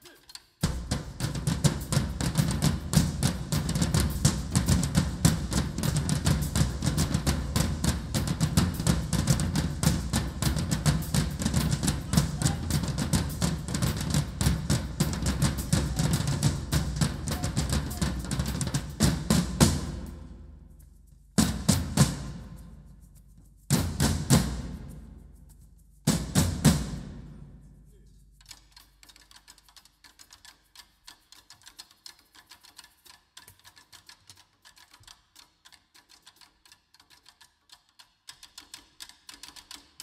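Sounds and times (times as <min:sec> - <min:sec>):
percussion ensemble drumming: 0:00.0 - 0:28.1.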